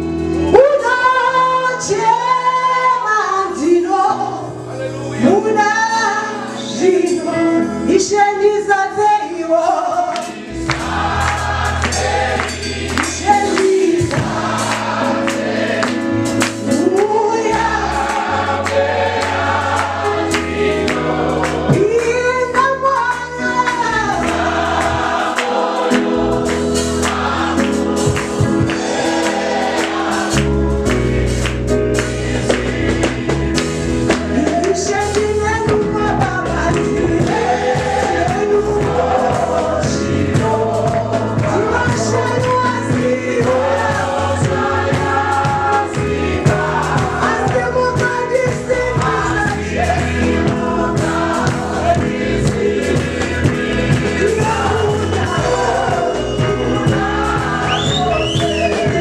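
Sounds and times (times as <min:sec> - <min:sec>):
electric keyboard: 0:00.0 - 0:59.0
woman singing lead: 0:00.4 - 0:04.5, 0:13.0 - 0:14.3, 0:21.6 - 0:24.4, 0:34.3 - 0:43.8, 0:54.2 - 0:59.0
choir singing: 0:09.6 - 0:22.5, 0:23.6 - 0:35.4, 0:36.2 - 0:59.0
steady beat: 0:10.2 - 0:22.3, 0:23.7 - 0:59.0.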